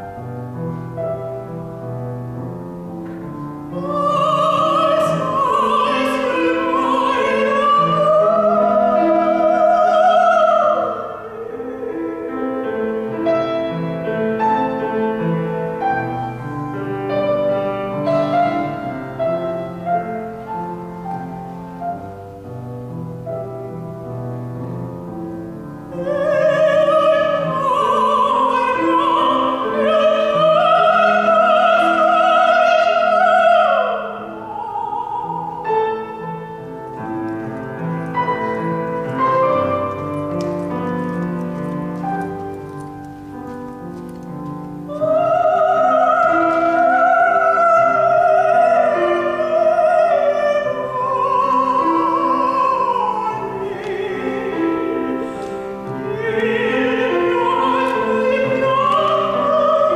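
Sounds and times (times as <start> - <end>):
grand piano: 0.0 - 59.9
operatic soprano singing: 3.6 - 20.3, 25.6 - 40.9, 44.7 - 59.9.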